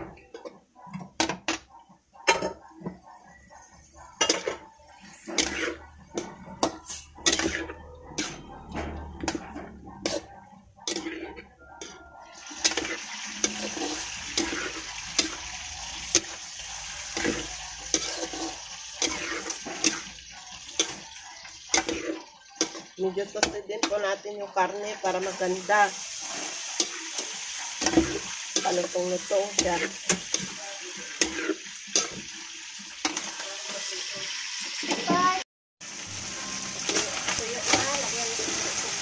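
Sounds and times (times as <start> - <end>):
pork sizzling: 0.0 - 39.0
utensil scraping a pan: 4.2 - 32.4.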